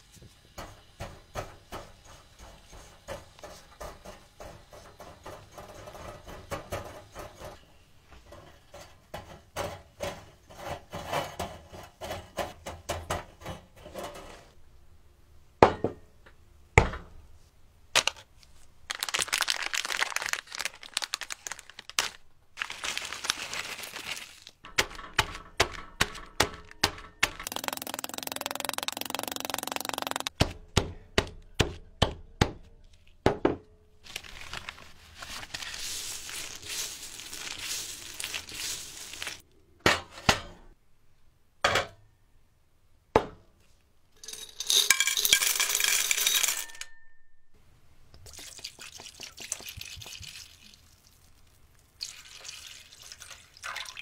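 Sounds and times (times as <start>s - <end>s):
rubbing or scraping: 34.1s - 39.4s.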